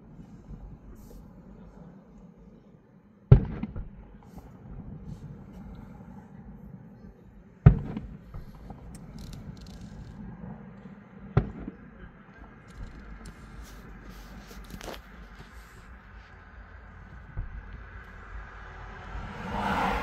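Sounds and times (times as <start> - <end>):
faint firework cracks: 3.3 - 5.2, 11.3 - 14.0
distant firework booms: 3.3 - 5.6, 7.6 - 9.0, 10.2 - 12.6.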